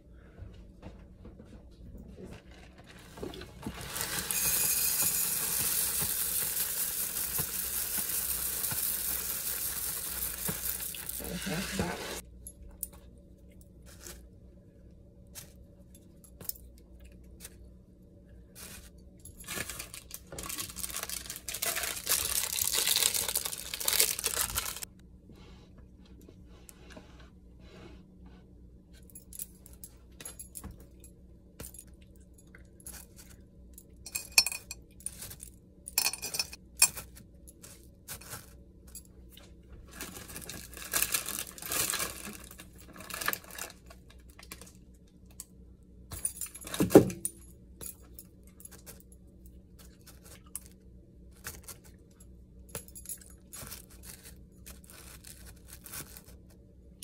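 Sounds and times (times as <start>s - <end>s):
dry crinkling rustle: 18.6s - 24.9s, 39.8s - 44.8s, 53.5s - 56.6s.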